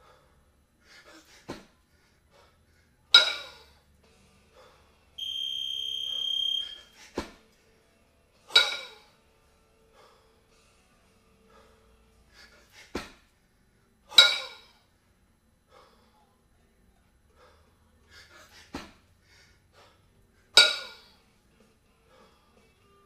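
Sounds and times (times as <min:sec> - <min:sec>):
kettlebells clanking together: 0:03.1 - 0:03.7, 0:08.5 - 0:09.1, 0:14.1 - 0:14.7, 0:20.6 - 0:21.1
short hard breaths: 0:04.5 - 0:04.9, 0:09.9 - 0:10.6, 0:11.5 - 0:13.0, 0:17.3 - 0:21.2, 0:22.1 - 0:22.7.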